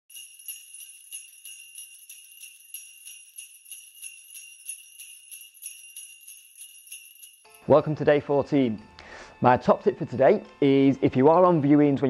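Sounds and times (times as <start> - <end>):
sleigh bells jingling: 0.1 - 7.9.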